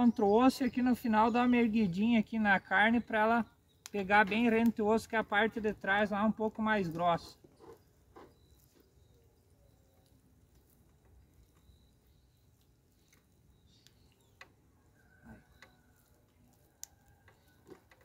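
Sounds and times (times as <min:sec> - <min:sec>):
faint clicks: 0:15.4 - 0:18.0.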